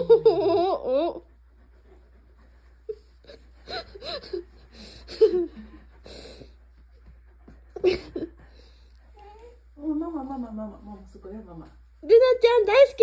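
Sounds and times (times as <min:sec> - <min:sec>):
person laughing wheezily: 0:03.6 - 0:05.8.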